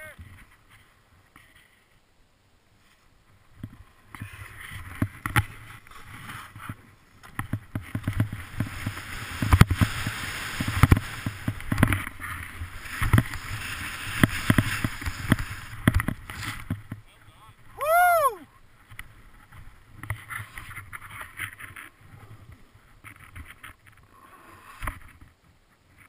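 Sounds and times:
snowboard hissing over snow: 0:08.4 - 0:11.6, 0:12.5 - 0:15.8.

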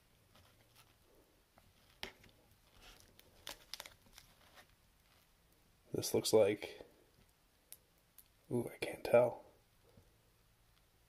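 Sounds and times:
plastic sleeves crinkling and clicking: 0:00.3 - 0:01.0, 0:01.6 - 0:05.3.

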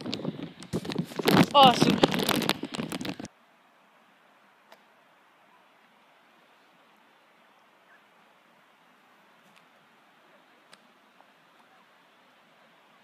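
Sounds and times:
plastic bag rustling: 0:00.0 - 0:03.3
faint hiss: 0:00.0 - 0:13.0.

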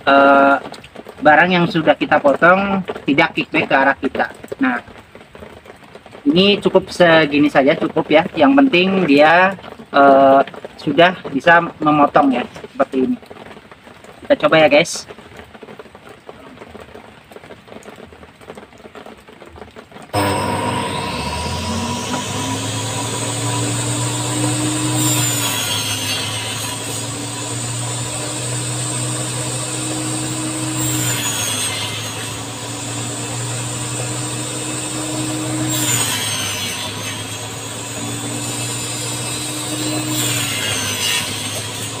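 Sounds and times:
motor hum: 0:20.2 - 0:42.0
table saw cutting wood: 0:20.2 - 0:42.0.

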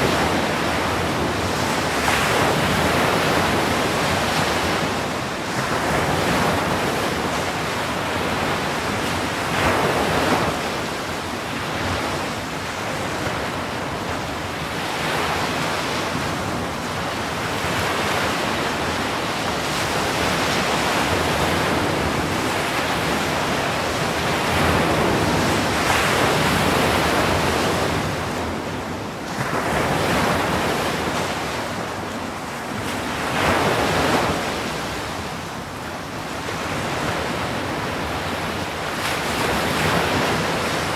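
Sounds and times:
ocean surf breaking on shore: 0:00.0 - 0:40.9.

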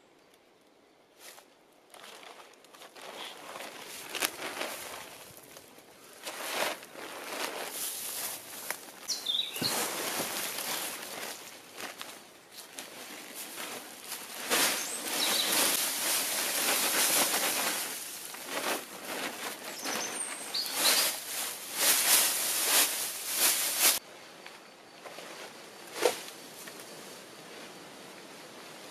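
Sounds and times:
tarp and brush rustling: 0:01.1 - 0:28.9
footsteps in leaf litter: 0:01.2 - 0:24.0.

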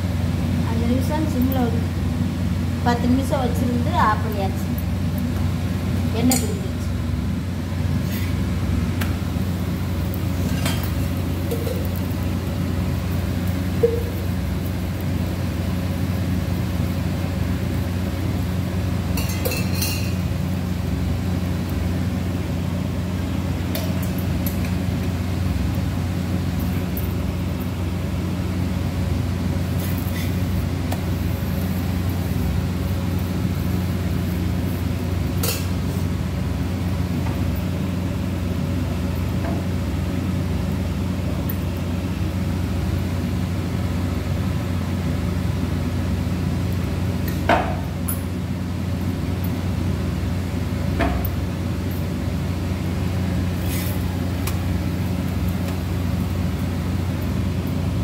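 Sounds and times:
low machine hum: 0:00.0 - 0:58.0
steel utensils clinking: 0:19.2 - 0:20.2.

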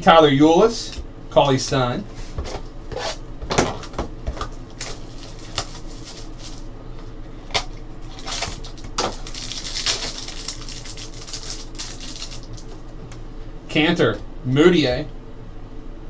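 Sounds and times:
papery rustling and crinkling: 0:02.2 - 0:06.7, 0:07.6 - 0:12.8.

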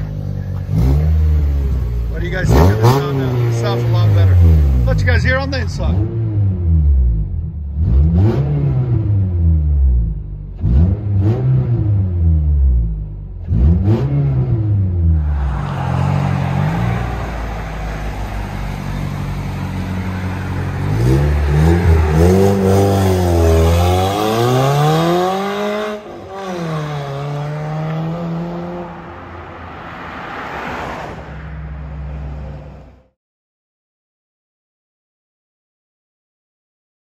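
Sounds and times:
car exhaust revving: 0:00.0 - 0:29.0.

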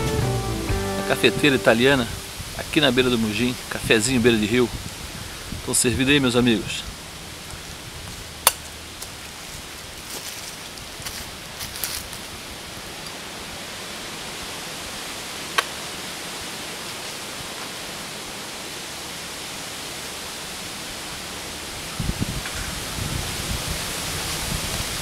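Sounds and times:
low thumps: 0:00.0 - 0:02.5
river water flowing: 0:00.0 - 0:22.0.

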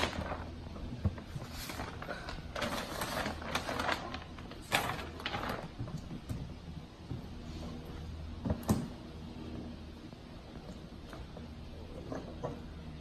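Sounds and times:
chip bag crinkling: 0:01.8 - 0:05.8.

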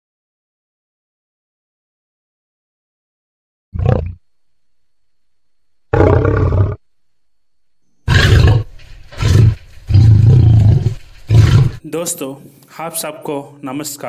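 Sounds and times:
lion roaring: 0:03.8 - 0:04.2, 0:05.9 - 0:06.8, 0:08.0 - 0:11.8.

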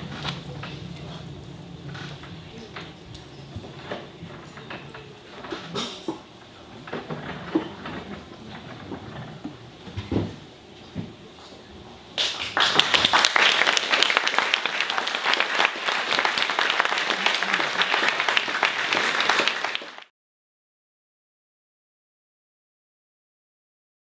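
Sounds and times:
audience clapping: 0:12.2 - 0:20.1.

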